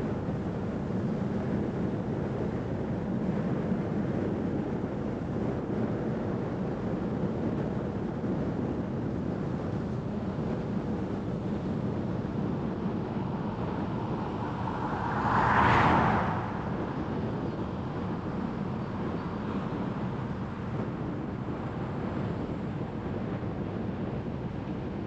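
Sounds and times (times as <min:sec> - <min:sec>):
car road and tyre noise: 0:00.0 - 0:25.0
brief rush of noise: 0:13.4 - 0:17.3.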